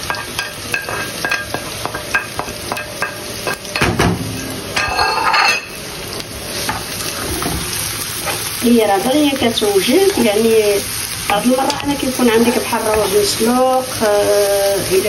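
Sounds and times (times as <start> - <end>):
vegetables sizzling in oil: 0.0 - 15.0
utensil scraping a pan: 4.3 - 5.7.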